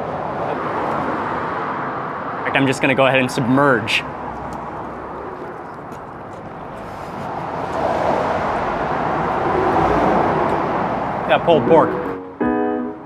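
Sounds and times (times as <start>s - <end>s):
passing vehicle rushing: 0.0s - 12.4s.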